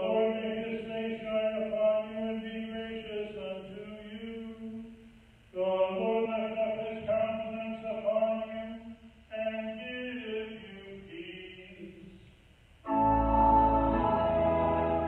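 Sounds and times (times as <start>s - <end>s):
man chanting: 0.0s - 5.0s, 5.6s - 12.1s
church organ chords: 12.9s - 15.0s.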